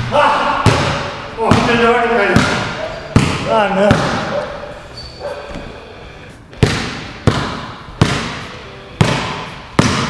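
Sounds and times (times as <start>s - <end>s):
basketball bouncing on concrete: 0.6s - 4.4s, 6.6s - 8.4s, 9.0s - 10.0s.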